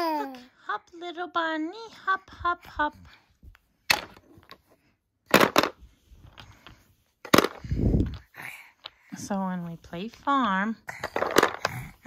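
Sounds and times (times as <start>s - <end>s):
plastic toys clacking: 5.3s - 9.0s, 11.0s - 12.0s.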